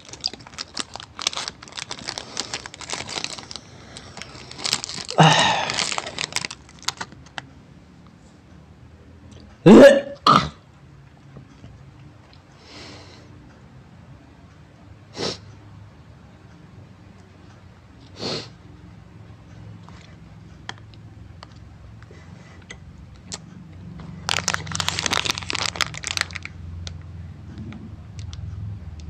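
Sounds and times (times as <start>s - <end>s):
plastic wrapper crinkling: 0.0s - 7.4s, 24.0s - 27.0s.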